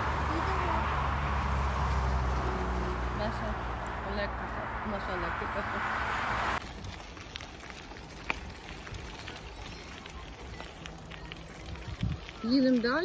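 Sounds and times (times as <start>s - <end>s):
loud rushing noise: 0.0s - 6.6s
bicycle tyres on gravel: 0.0s - 13.0s.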